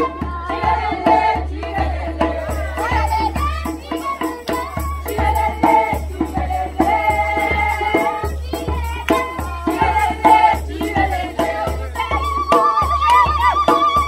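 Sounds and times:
hand drum beating: 0.0s - 14.0s
choir singing long notes: 9.6s - 14.0s.

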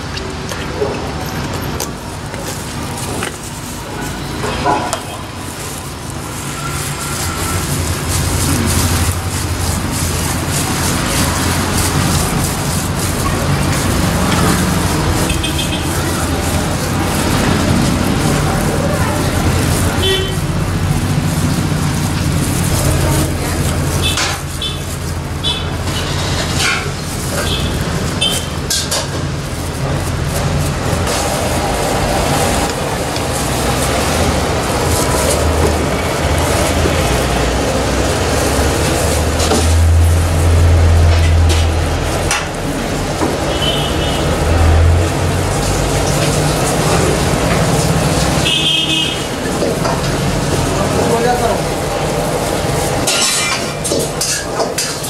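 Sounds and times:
street traffic: 0.0s - 55.0s.

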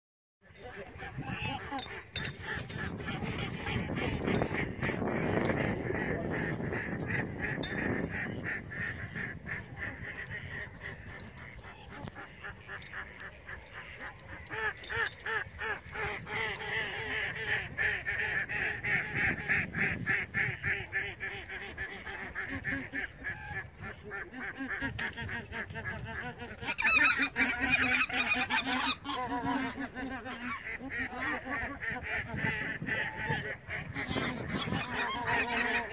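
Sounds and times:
ducks quacking: 0.5s - 35.9s
geese honking: 0.6s - 35.9s.

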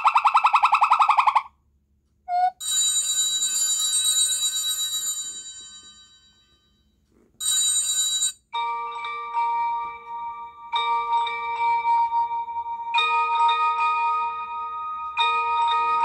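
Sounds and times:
fast warbling tone: 0.0s - 1.5s
bright chiming ringtone: 2.3s - 16.0s.

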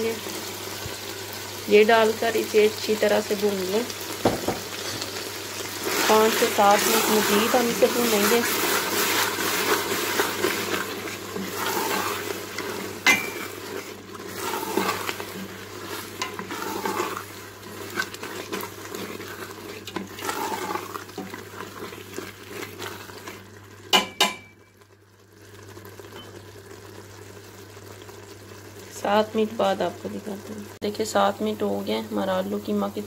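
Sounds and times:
food sizzling: 0.0s - 33.0s
spoon stirring and scraping pot: 5.8s - 24.5s
spoon knocking against pot: 23.9s - 24.5s.

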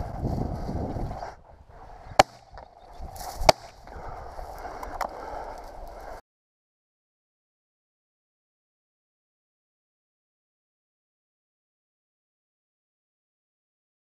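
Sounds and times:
shotgun shots: 2.2s - 2.5s.

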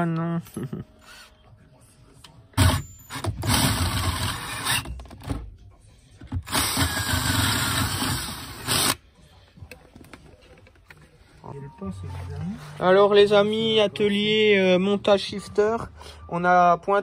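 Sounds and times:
cordless drill drilling: 6.5s - 9.0s.

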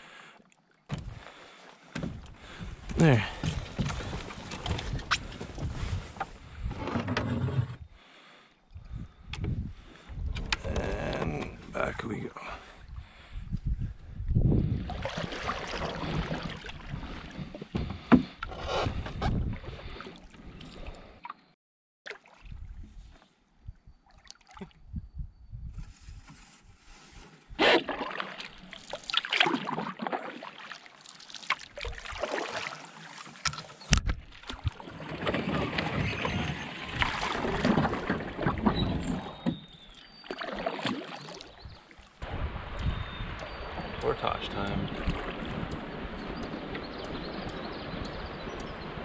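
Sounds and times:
paddle strokes and splashing water: 0.4s - 6.4s, 14.8s - 21.4s, 22.1s - 23.3s, 26.0s - 49.0s.

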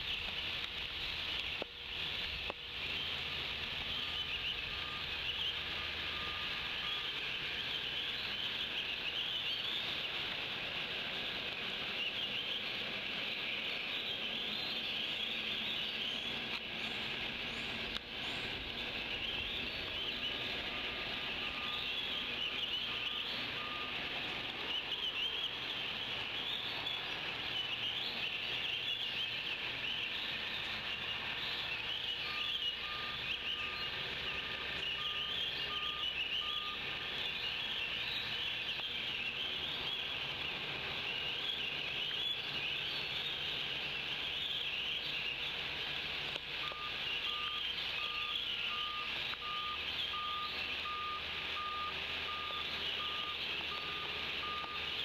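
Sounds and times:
birds chirping chorus: 0.0s - 55.0s
distant reversing alarm beeping: 3.8s - 10.0s, 18.6s - 30.2s, 30.9s - 40.1s, 46.6s - 55.0s.

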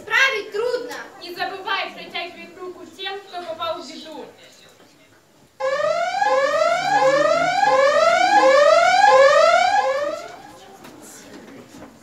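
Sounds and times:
electronic whooping alarm: 5.6s - 10.5s.

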